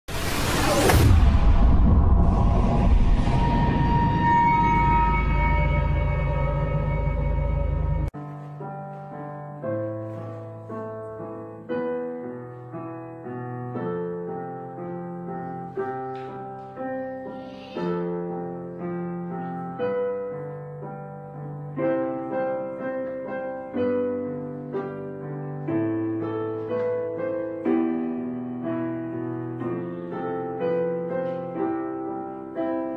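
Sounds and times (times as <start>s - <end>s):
loud intro sting: 0.1s - 8.1s
gentle keyboard music: 8.1s - 32.9s.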